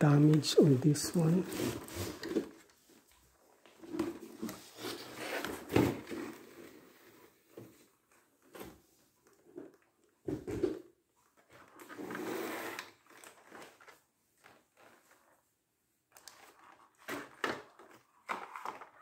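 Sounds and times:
cardboard box scraping and rustling: 1.2 - 2.7, 3.9 - 7.4.

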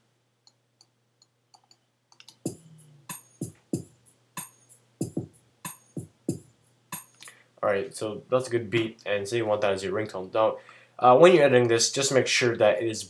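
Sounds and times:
electronic drum beat: 2.3 - 7.3.

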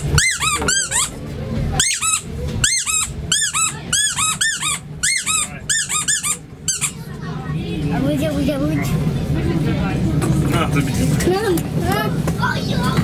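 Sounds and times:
rubber squeeze toy squeaking: 0.0 - 1.2, 1.8 - 7.0.

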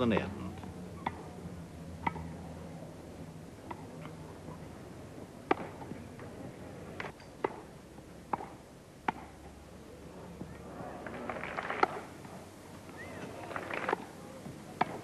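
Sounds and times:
tennis ball hit by rackets: 1.0 - 1.2, 2.0 - 2.3, 3.6 - 3.9, 5.4 - 6.0, 8.3 - 9.4, 11.6 - 12.0, 14.8 - 15.0.

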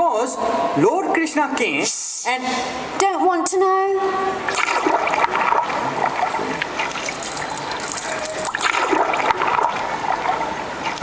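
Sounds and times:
running water rushing: 4.4 - 11.0.

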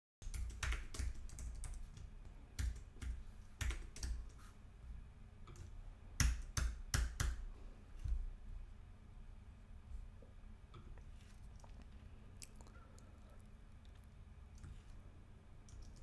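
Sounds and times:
computer keyboard typing: 0.2 - 4.4, 15.7 - 16.0
low steady hum: 0.2 - 16.0.

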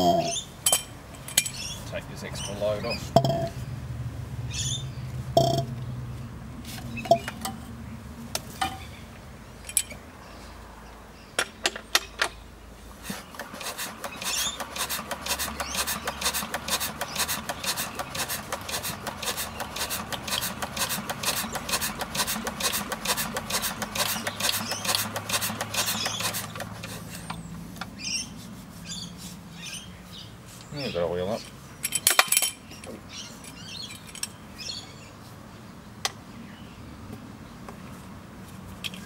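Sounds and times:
engine hand-crank clanks: 3.1 - 3.6, 13.0 - 28.0
diesel engine rapid chuffing: 13.0 - 27.3.

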